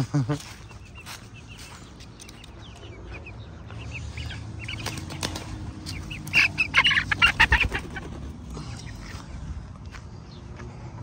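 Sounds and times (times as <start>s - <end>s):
hens calling: 0.0s - 9.4s
wings flapping: 4.6s - 8.6s.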